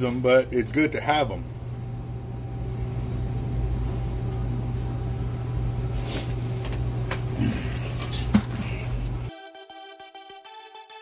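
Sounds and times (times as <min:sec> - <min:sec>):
machinery humming: 0:00.0 - 0:09.3.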